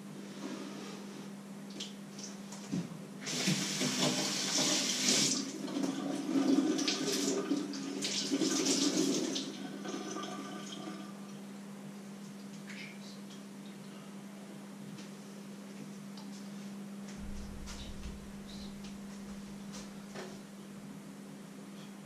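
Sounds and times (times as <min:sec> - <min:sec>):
steady low hum: 0:10.9 - 0:22.0.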